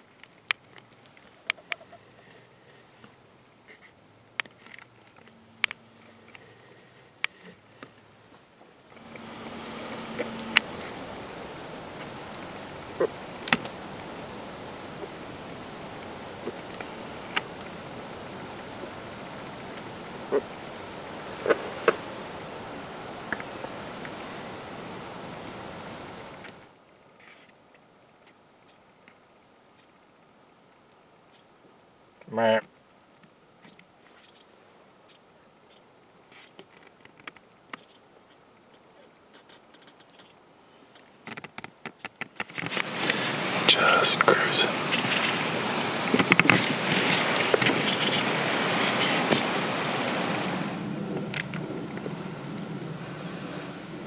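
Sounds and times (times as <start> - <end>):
faint clicks and ticks: 0.0 - 11.0, 11.8 - 15.2, 15.9 - 20.7, 36.5 - 43.2
faint high insect drone: 0.0 - 54.0
steady hiss: 0.0 - 54.0.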